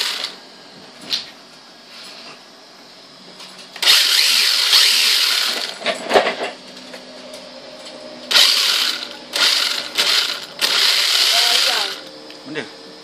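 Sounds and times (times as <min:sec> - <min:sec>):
remote-control car motor whine: 0:00.0 - 0:00.4, 0:03.8 - 0:05.8, 0:08.3 - 0:12.0.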